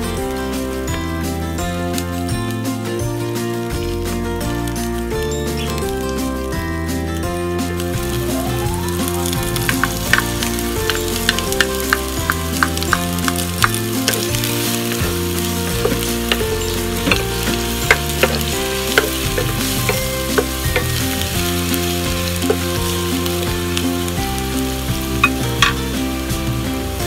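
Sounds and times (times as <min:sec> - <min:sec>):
garlic sizzling in hot oil: 0:00.2 - 0:27.0
wooden spatula scraping a pan: 0:09.2 - 0:23.4
small pops: 0:09.3 - 0:21.2.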